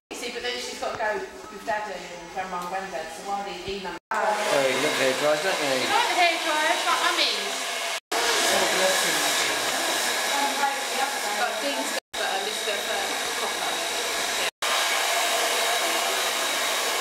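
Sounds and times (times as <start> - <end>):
hair dryer blowing: 4.2 - 17.0.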